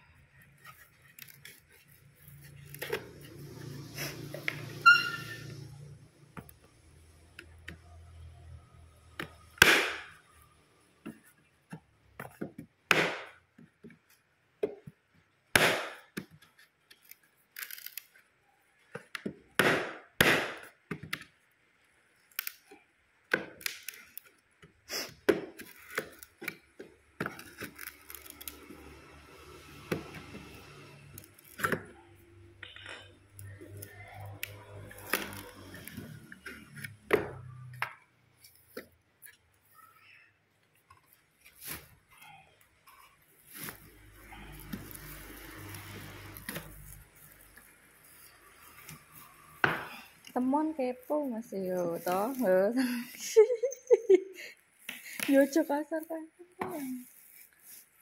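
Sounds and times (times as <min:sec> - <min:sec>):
wood scraping and handling: 0:00.1 - 0:05.3.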